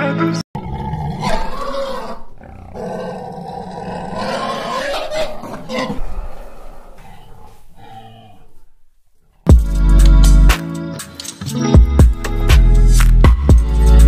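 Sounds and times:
animal calling: 0.6 - 9.4.

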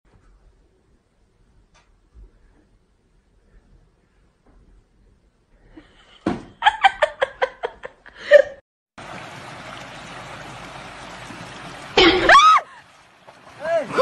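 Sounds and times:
outdoor noise hiss: 9.0 - 14.0.

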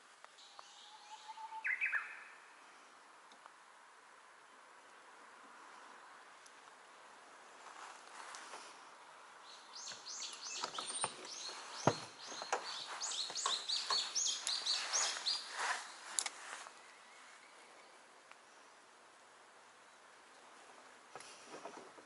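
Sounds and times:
songbird singing high notes: 0.4 - 2.4, 9.5 - 16.0.

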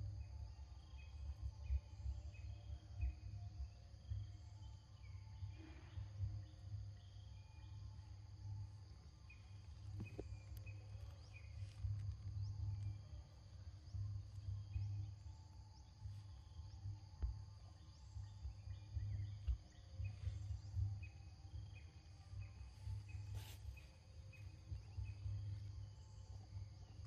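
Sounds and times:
insects buzzing: 0.0 - 27.0
short insect chirps: 17.7 - 27.0.

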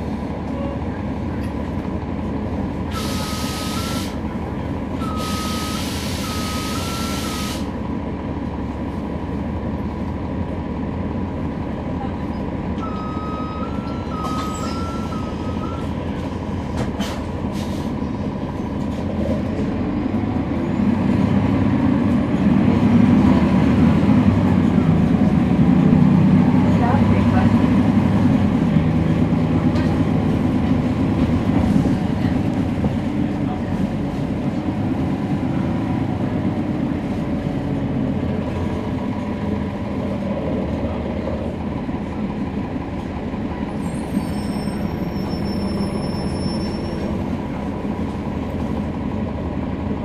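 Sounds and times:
bus diesel engine rumble: 0.0 - 50.0
air brake hiss: 2.9 - 4.2, 5.2 - 7.8, 17.0 - 18.0.

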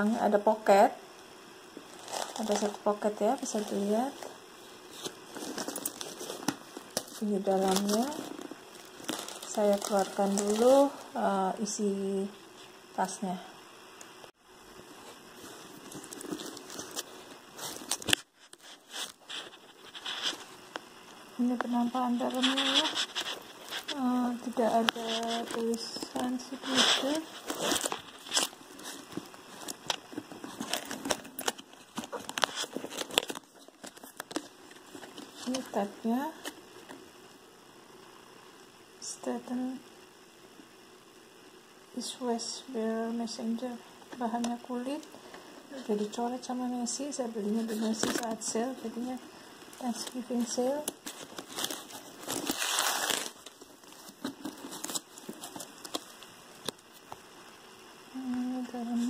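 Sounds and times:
handbag rustling: 1.9 - 11.1, 15.4 - 20.6, 21.4 - 33.8.

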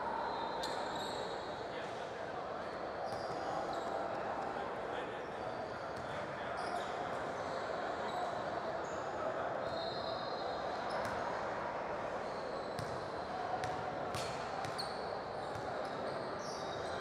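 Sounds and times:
sneakers squeaking: 10.9 - 11.2, 12.6 - 17.0.

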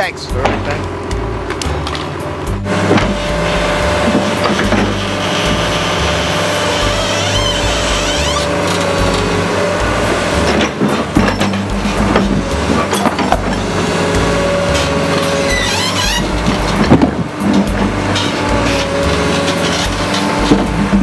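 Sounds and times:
excavator engine drone: 0.0 - 21.0
hydraulic whine: 0.4 - 21.0
bucket scraping and knocking: 4.0 - 9.4, 14.8 - 21.0.

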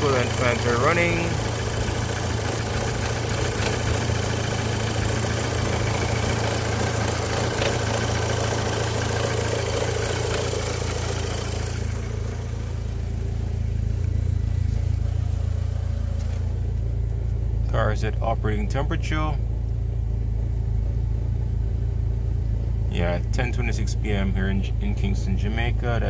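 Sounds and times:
cooling fans rushing: 0.0 - 17.2
car engine idling: 0.0 - 26.0.

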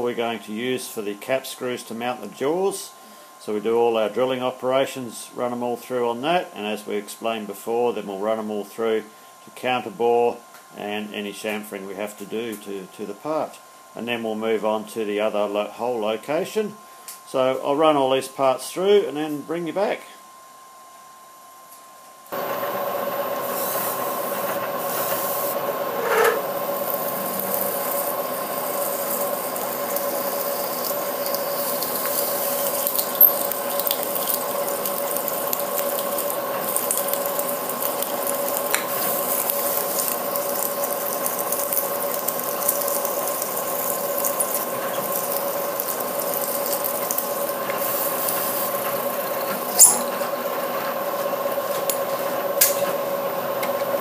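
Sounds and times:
milling machine spindle whine: 22.4 - 54.0
chips scraping: 23.5 - 50.1.

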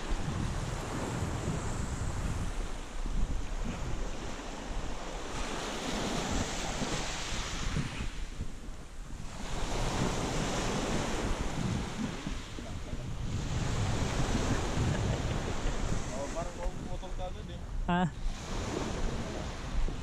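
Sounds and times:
small waves on gravel beach: 0.0 - 8.4
wind buffeting microphone: 0.0 - 20.0.

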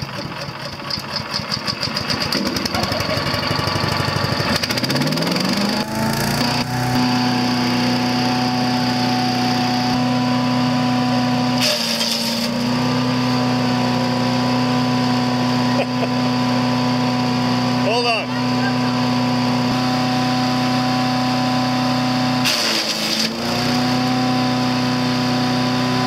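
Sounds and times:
small engine idling and revving: 0.0 - 26.0.

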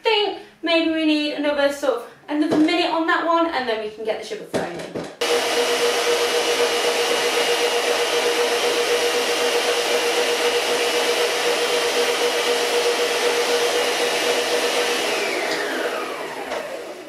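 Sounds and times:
stand mixer motor whine: 5.2 - 17.0.

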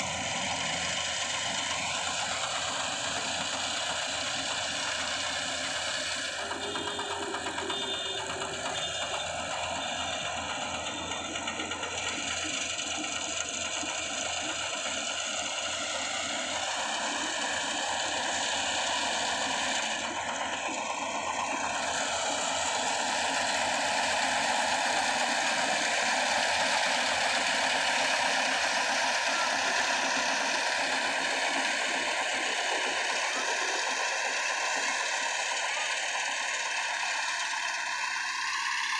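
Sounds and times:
combine harvester running: 0.0 - 38.9.

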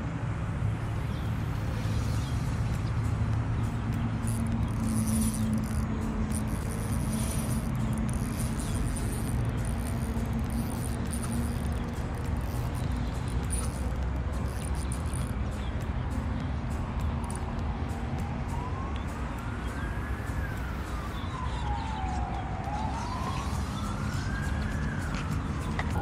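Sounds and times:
road traffic drone: 0.0 - 26.0
insects buzzing: 3.6 - 15.7.

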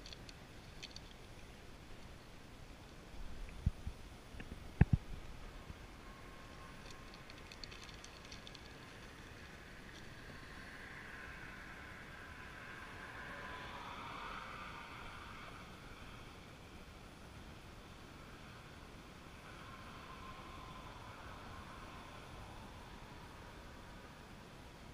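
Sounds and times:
fishing tackle ticks: 0.0 - 2.1, 6.7 - 10.3.

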